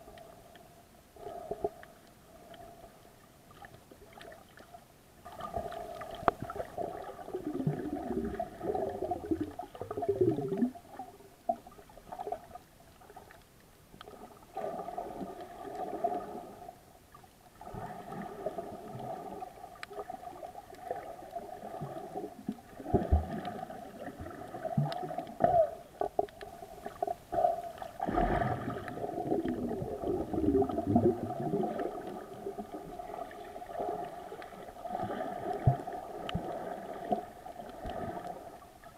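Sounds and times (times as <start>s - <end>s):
faint clicks: 0.1s - 0.7s, 1.3s - 2.8s, 5.9s - 6.6s, 19.8s - 20.0s, 26.0s - 27.1s
muffled underwater gurgling: 5.2s - 11.5s, 17.6s - 38.9s.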